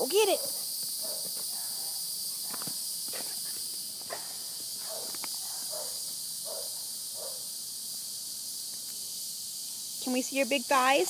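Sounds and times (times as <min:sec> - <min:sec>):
high-pitched hiss: 0:00.0 - 0:11.0.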